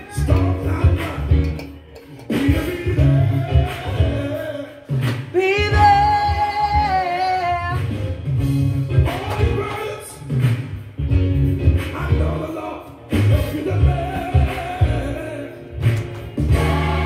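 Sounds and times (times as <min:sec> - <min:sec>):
person singing: 0:00.0 - 0:07.8
pulsing bass beat: 0:00.2 - 0:04.4, 0:05.6 - 0:09.6, 0:15.9 - 0:17.0.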